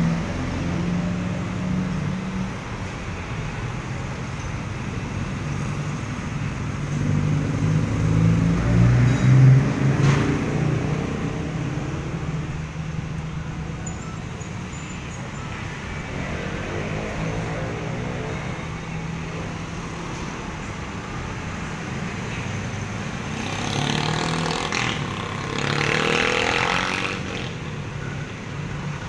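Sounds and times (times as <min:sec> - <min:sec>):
cars passing: 0:00.0 - 0:29.0
loud vehicle passing: 0:05.4 - 0:13.8, 0:15.6 - 0:27.8
motor scooters passing: 0:05.8 - 0:28.0.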